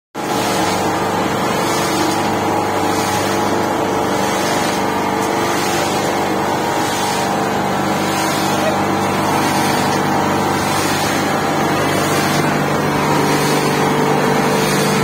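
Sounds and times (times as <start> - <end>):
engine running steadily: 0.2 - 15.0.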